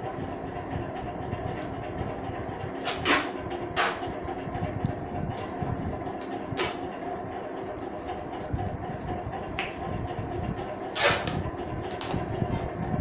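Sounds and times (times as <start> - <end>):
steady background hum: 0.0 - 13.0
tape ripping off roll: 11.0 - 11.4.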